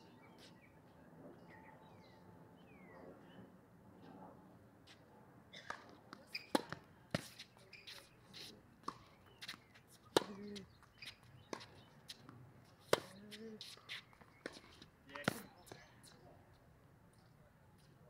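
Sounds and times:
tennis balls struck by rackets: 5.7s - 15.8s
balls bouncing on hard court: 14.4s - 15.6s.

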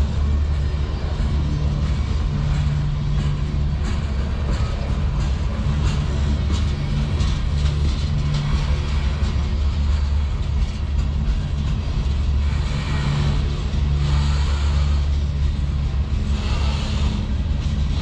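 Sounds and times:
train wheels rumbling on rail: 0.0s - 18.0s
hiss: 16.2s - 17.4s.

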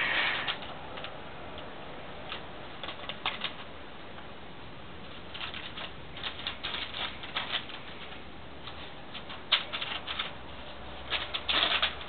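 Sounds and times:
newspaper rustling and crinkling: 5.1s - 12.0s.

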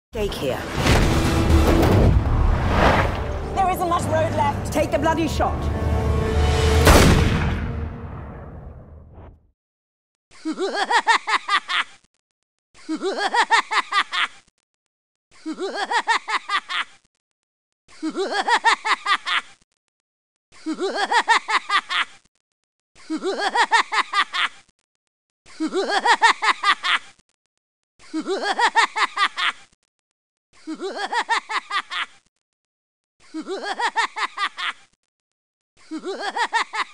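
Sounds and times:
rapid laughter: 10.3s - 12.1s, 12.8s - 14.5s, 15.3s - 17.1s, 17.9s - 19.6s, 20.5s - 22.3s, 23.0s - 24.7s, 25.5s - 27.2s, 28.0s - 29.8s, 30.6s - 32.3s, 33.2s - 35.0s, 35.8s - 36.9s.

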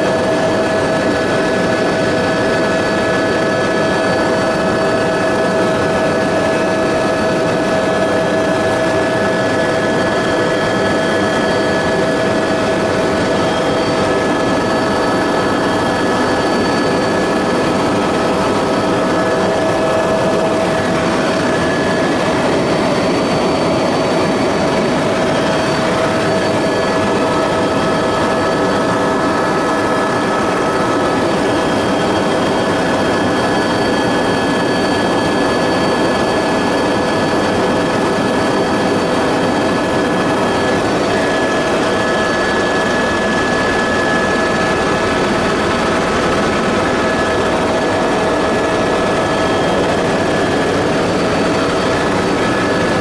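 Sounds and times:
helicopter engine and rotor: 0.0s - 53.0s.

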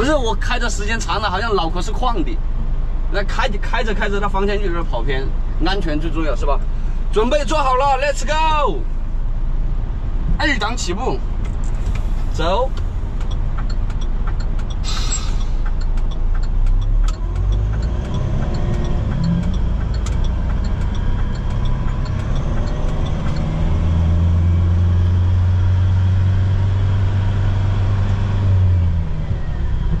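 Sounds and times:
faint regular ticking: 11.4s - 24.3s
truck engine accelerating: 11.4s - 30.0s
short hiss: 14.8s - 15.6s.

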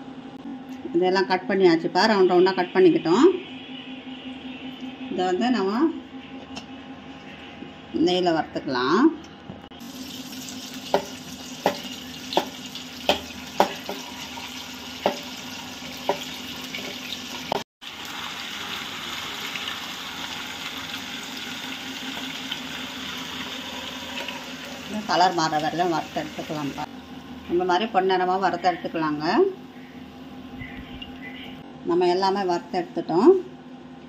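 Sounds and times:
ghee sizzling in a pan: 9.8s - 26.8s.

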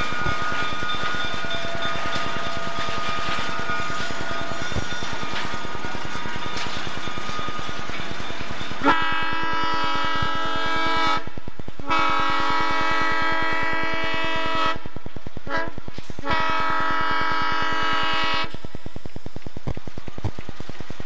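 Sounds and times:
train air horn blasts: 8.8s - 18.6s.

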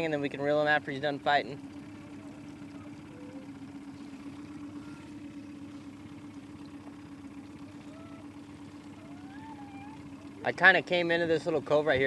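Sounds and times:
boat motor humming: 0.0s - 12.0s.

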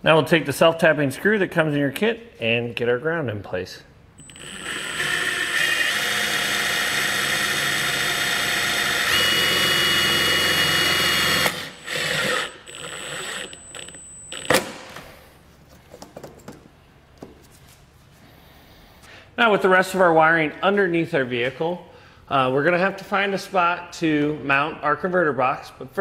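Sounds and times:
cordless drill driving screw into metal: 4.2s - 15.0s.

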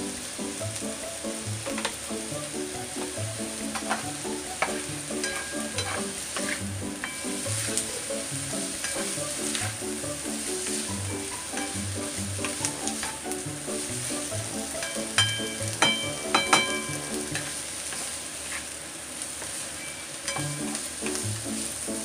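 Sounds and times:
soft background music with beat: 0.0s - 17.5s
food sizzling in frying pan: 0.0s - 22.0s
spatula scraping and knocking pan: 1.6s - 2.1s, 3.0s - 18.7s, 19.9s - 21.2s.

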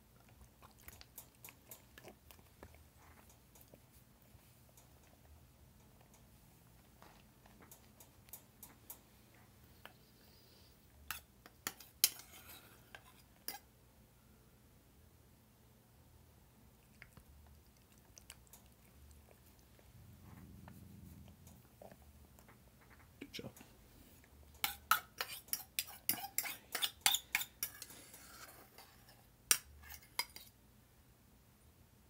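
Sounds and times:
metal spoon clinking and scraping: 11.1s - 13.7s, 24.5s - 30.5s.

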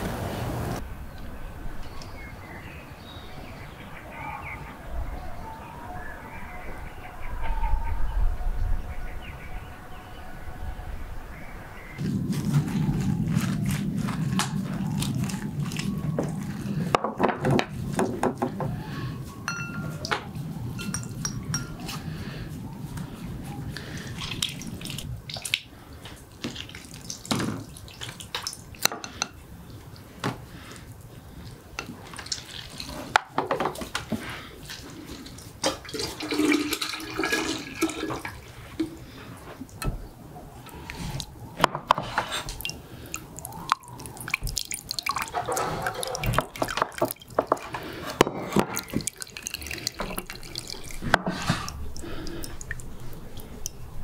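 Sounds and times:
juice pouring into a jug: 35.1s - 38.5s, 43.0s - 53.8s.

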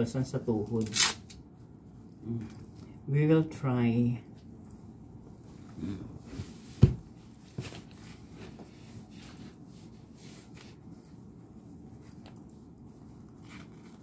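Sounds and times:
fabric rustling and handling: 5.3s - 14.0s.

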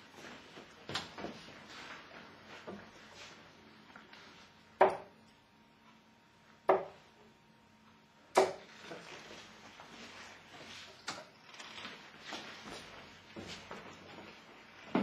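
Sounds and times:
darts thudding into dartboard: 4.8s - 5.1s, 6.7s - 7.0s, 8.4s - 8.7s.

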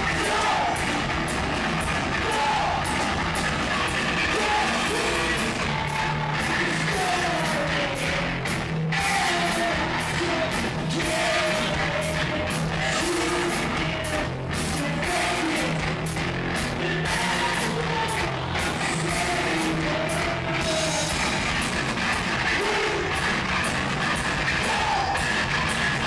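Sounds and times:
person singing and shouting: 0.0s - 8.3s, 8.9s - 15.9s, 16.8s - 21.2s, 22.4s - 23.4s, 24.4s - 25.4s
bass guitar: 0.0s - 26.0s
drums pounding: 0.0s - 26.0s
electric guitar: 0.0s - 26.0s.

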